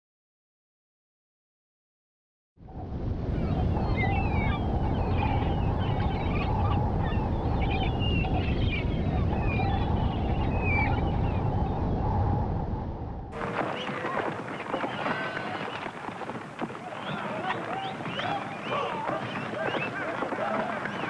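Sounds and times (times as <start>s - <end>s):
storm wind howling: 2.6s - 21.0s
bird cries: 3.4s - 11.8s, 13.4s - 21.0s
surf breaking: 13.4s - 21.0s.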